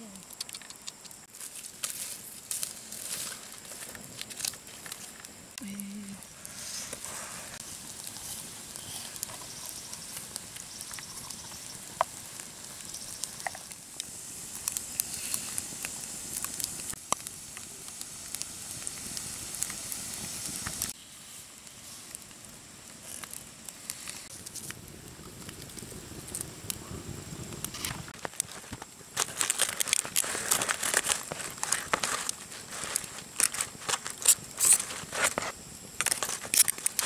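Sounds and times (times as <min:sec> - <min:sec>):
wood fire crackling: 0:00.0 - 0:37.0
juices sizzling: 0:01.2 - 0:21.0, 0:27.2 - 0:37.0.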